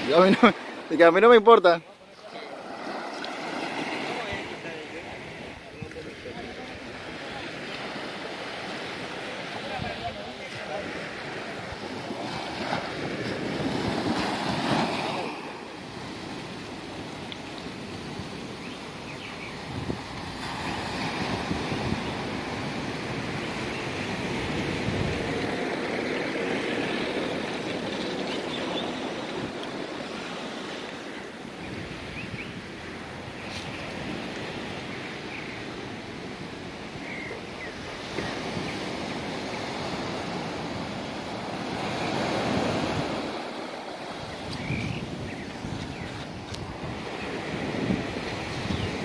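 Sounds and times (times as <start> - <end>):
small waves washing up beach: 0.0 - 49.0
wind buffeting microphone: 19.4 - 30.1, 44.1 - 49.0.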